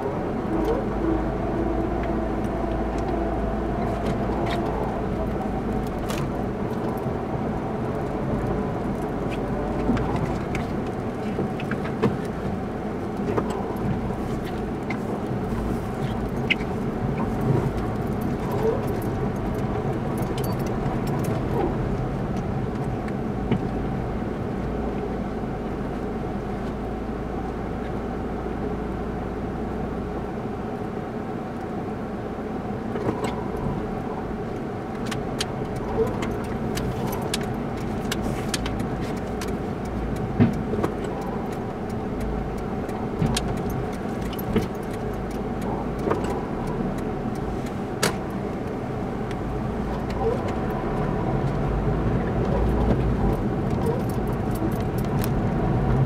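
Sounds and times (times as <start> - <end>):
car engine and road hum: 0.0 - 56.0
small clicks and creaks: 1.8 - 7.1, 34.5 - 56.0.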